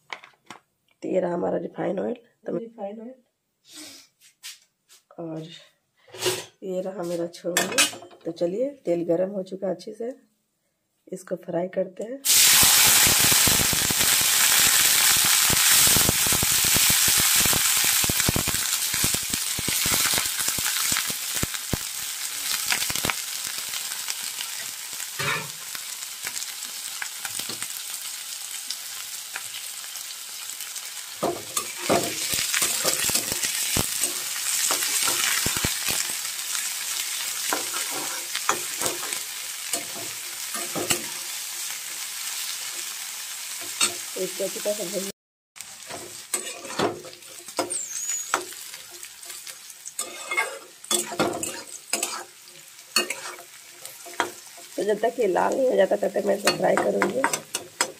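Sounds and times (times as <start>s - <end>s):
metal spatula scraping pan: 6.0s - 6.6s, 25.2s - 25.6s, 31.2s - 36.0s, 37.4s - 41.2s, 45.9s - 54.8s
vegetables sizzling in hot oil: 12.2s - 57.9s.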